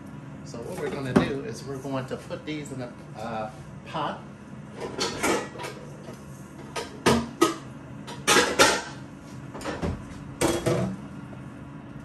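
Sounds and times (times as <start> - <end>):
metal pots and pans clanking: 6.7 - 9.0.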